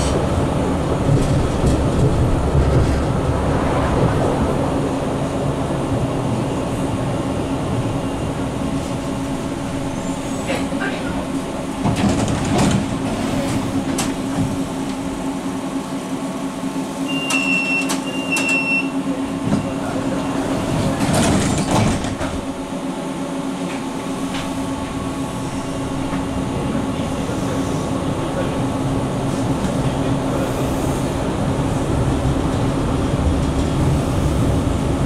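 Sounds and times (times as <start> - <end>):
tram equipment hum: 0.0 - 35.0.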